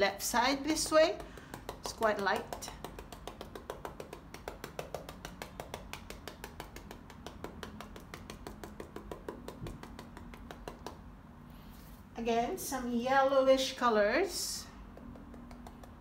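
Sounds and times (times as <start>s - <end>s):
paintbrush tapping on canvas: 0.7s - 11.1s, 14.9s - 16.0s.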